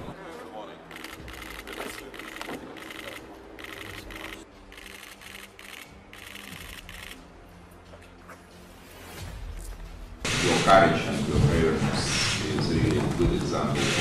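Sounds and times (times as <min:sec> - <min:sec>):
camera shutters clicking: 0:00.9 - 0:07.2.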